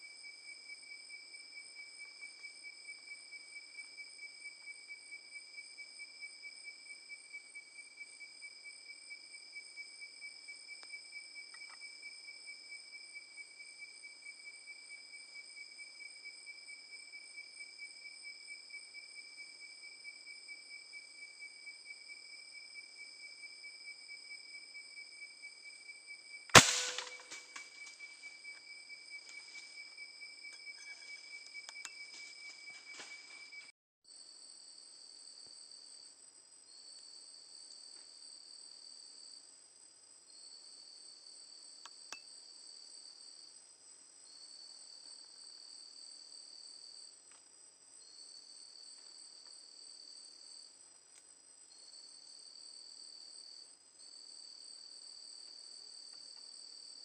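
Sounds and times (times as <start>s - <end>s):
night insects chirring: 0.0s - 33.7s, 34.4s - 57.0s
air rifle shot: 26.6s - 27.4s.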